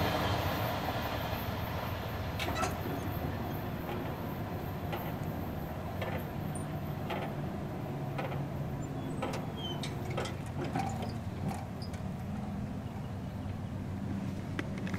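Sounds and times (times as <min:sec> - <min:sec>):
crossing gate mechanism hum: 0:02.3 - 0:13.9.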